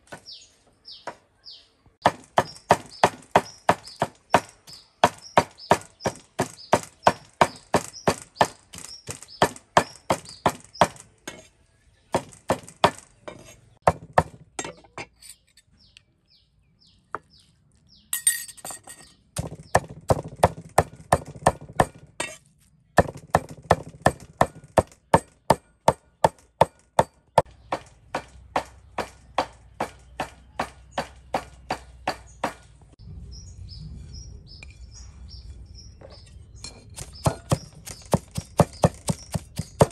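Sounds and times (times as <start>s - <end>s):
cleaver chopping meat on wood: 2.0s - 11.0s, 13.8s - 14.5s, 19.4s - 22.1s, 23.0s - 32.6s, 37.0s - 39.9s.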